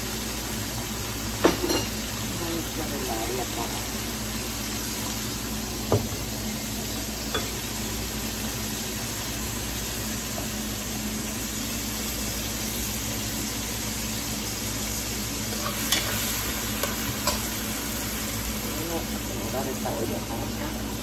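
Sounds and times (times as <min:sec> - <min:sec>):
vegetables sizzling in oil: 0:00.0 - 0:21.0.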